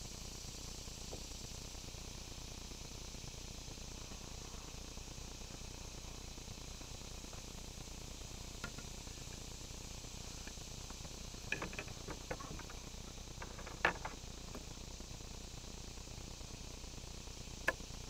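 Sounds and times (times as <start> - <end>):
low hiss: 0.0 - 18.0
small clicks and taps: 11.5 - 12.8, 13.4 - 14.6.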